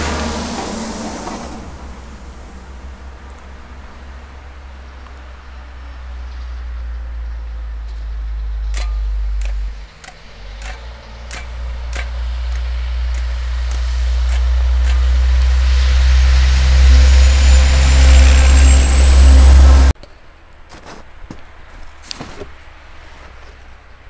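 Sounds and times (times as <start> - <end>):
diesel truck driving past: 0.0 - 20.0.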